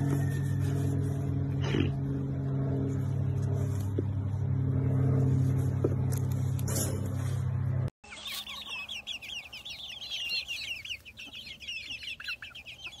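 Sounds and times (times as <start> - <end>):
loud low drone: 0.0 - 7.9
hens clucking and chirping: 8.0 - 13.0.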